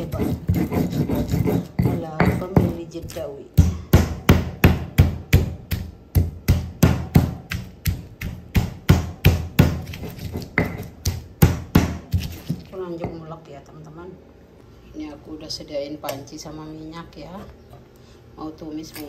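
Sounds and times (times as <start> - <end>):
stone pestle knocking on stone: 0.0 - 13.2.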